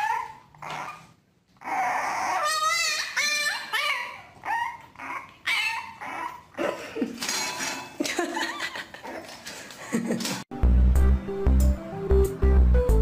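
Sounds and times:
puppy whining: 0.0 - 6.8, 9.0 - 9.4.

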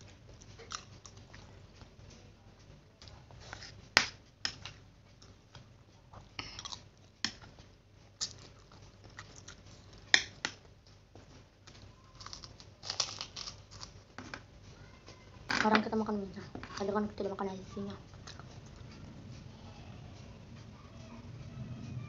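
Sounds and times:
chewing noodles: 0.0 - 2.1, 4.5 - 10.6, 11.6 - 14.0, 18.0 - 19.8
cracker crunching: 11.6 - 14.5.

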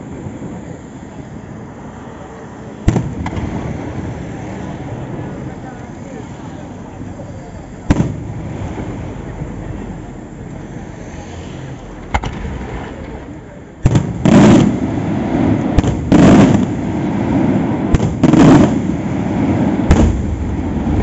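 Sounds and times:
fireworks sharp cracks: 0.0 - 11.0, 11.6 - 21.0
fireworks bangs with rumbling tail: 2.8 - 6.4, 7.0 - 10.9, 11.9 - 21.0.

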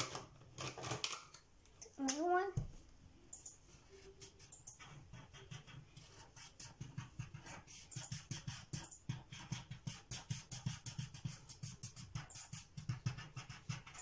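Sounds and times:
marker scribbling on paper: 3.7 - 14.0.

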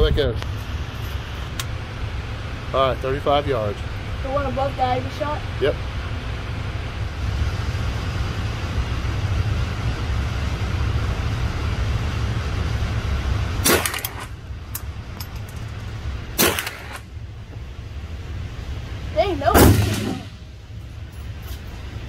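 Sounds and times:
steady low rumble: 0.0 - 22.0
rifle shots: 13.6 - 14.3, 16.4 - 17.0, 19.6 - 20.4.

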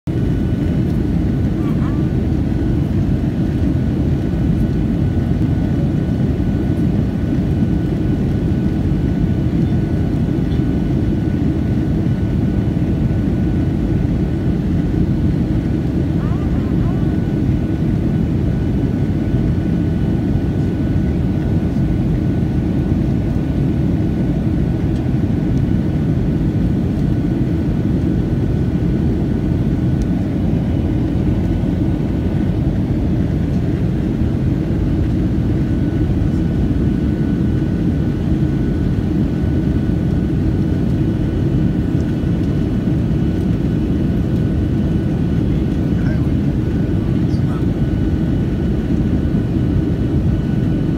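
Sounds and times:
jet engine and airflow rush: 0.1 - 50.9.

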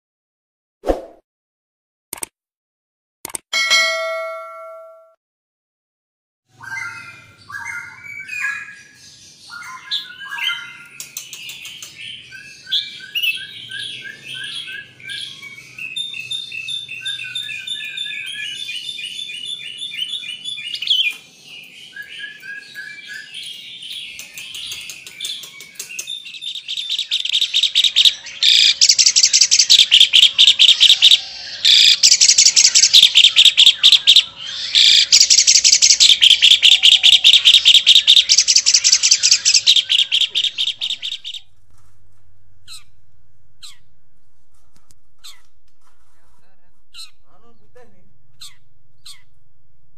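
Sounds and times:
bulbul warbling song: 24.1 - 41.5.

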